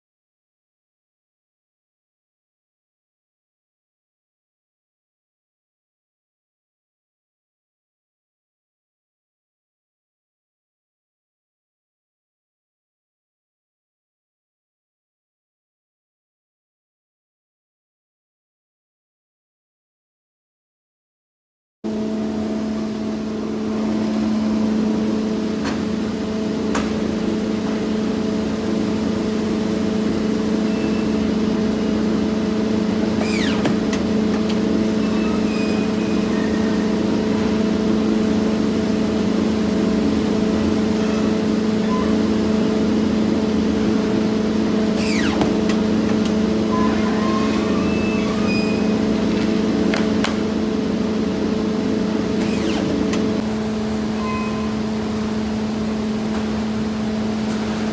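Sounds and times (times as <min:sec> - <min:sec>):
machine hum: 0:21.9 - 0:57.9.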